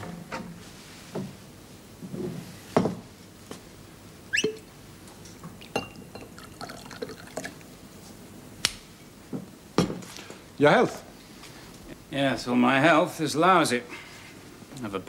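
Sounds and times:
drink pouring into glass: 5.5 - 7.7
glass clinks and knocks: 5.8 - 6.3.

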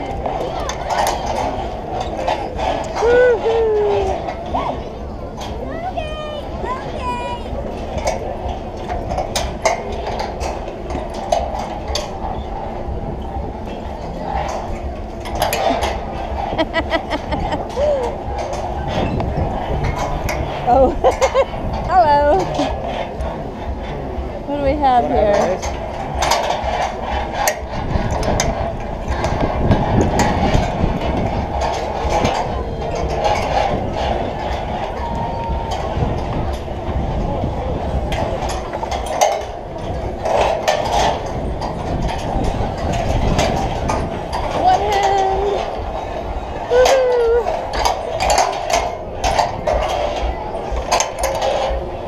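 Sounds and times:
steady low rumble: 0.0 - 52.0
clicks and clanks of gear: 37.9 - 52.0.

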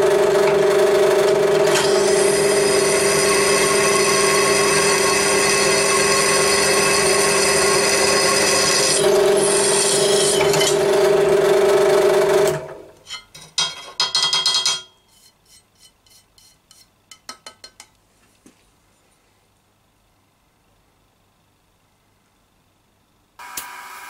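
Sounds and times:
drill press bit squealing in steel: 1.7 - 10.8.

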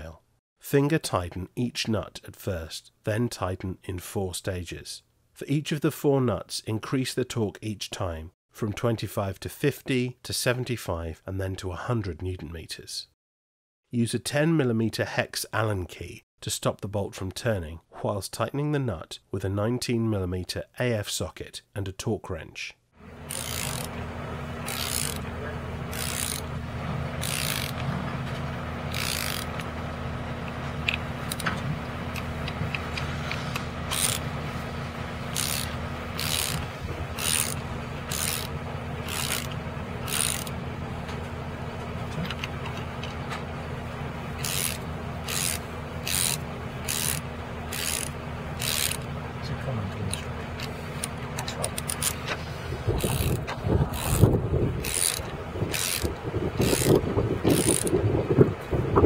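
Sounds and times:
steady low hum: 23.0 - 59.0
torque wrench ratchet clicking: 23.2 - 24.0, 24.6 - 25.3, 25.9 - 26.5, 27.2 - 27.8, 28.9 - 29.7, 30.8 - 31.5, 33.9 - 34.3, 35.3 - 40.6, 44.4 - 49.1, 51.7 - 52.2, 53.0 - 58.0.

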